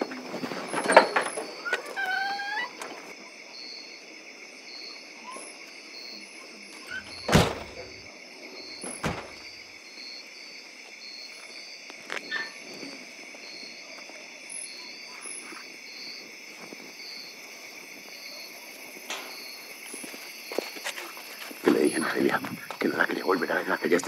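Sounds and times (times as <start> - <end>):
crickets chirping: 0.0 - 24.0
sharp knocks: 7.0 - 8.0.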